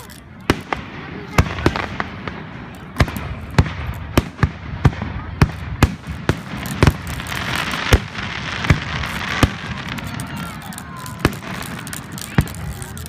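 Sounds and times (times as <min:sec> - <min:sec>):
fireworks shells bursting: 0:00.0 - 0:13.0.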